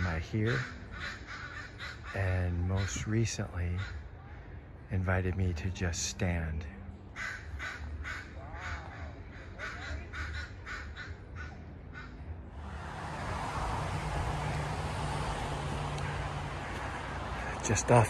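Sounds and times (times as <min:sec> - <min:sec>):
crow cawing: 0:00.4 - 0:02.2, 0:07.2 - 0:12.1, 0:13.8 - 0:17.6
steady rushing noise: 0:12.5 - 0:18.0.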